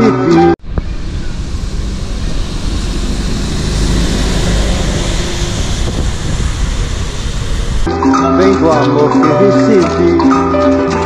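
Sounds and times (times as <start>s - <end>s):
engine rumble: 0.0s - 7.9s
vehicles passing on wet road: 0.6s - 7.9s.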